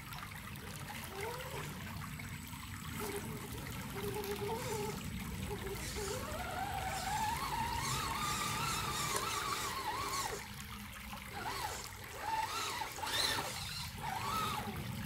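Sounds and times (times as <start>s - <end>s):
water trickling and splashing: 0.0s - 15.0s
electric motor whining: 3.0s - 10.6s, 11.3s - 15.0s.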